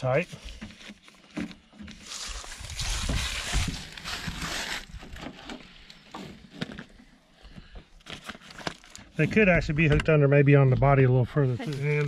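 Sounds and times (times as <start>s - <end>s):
strap sliding through buckle: 2.0s - 6.7s.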